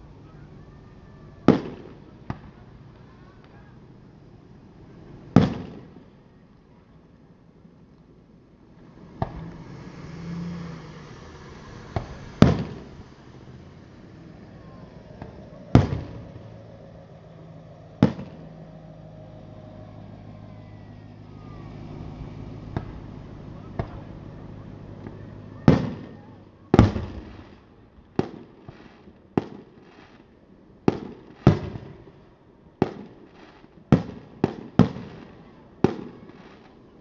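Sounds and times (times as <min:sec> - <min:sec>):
fireworks booming: 0:00.0 - 0:03.8, 0:04.8 - 0:06.2, 0:09.0 - 0:09.8, 0:11.5 - 0:16.8, 0:17.9 - 0:18.8, 0:21.2 - 0:36.9.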